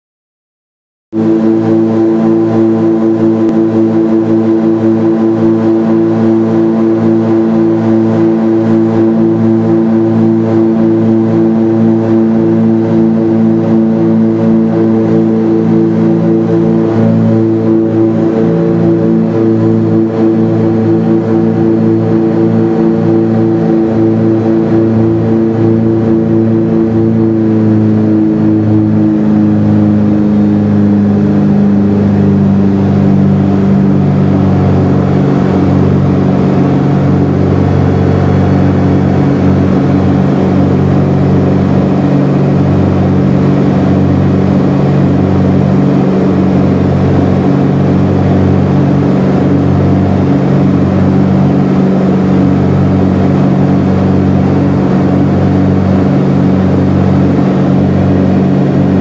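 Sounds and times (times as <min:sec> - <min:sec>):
aircraft engines droning in cabin: 0:01.1 - 0:59.0.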